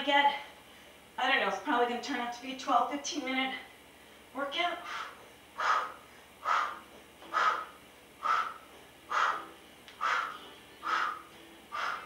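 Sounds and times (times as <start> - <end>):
person exhaling forcefully: 4.8 - 12.0.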